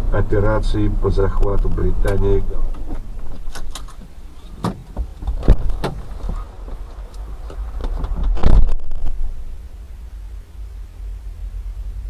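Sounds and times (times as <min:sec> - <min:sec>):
vehicle rumbling from inside cab: 0:00.0 - 0:12.0.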